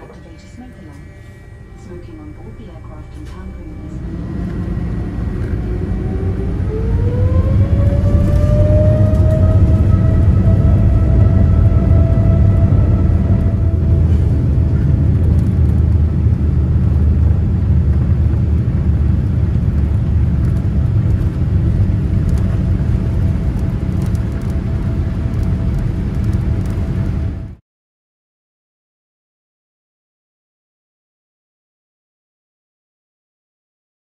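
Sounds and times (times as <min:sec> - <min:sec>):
jet engine rumble: 0:00.0 - 0:27.6
jet engine whine: 0:00.0 - 0:27.6.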